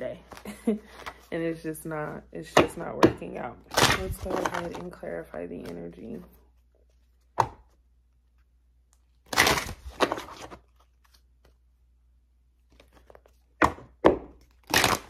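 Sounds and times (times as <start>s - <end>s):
cards shuffling: 0.2s - 1.3s, 3.7s - 5.0s, 5.6s - 11.6s, 12.6s - 15.0s.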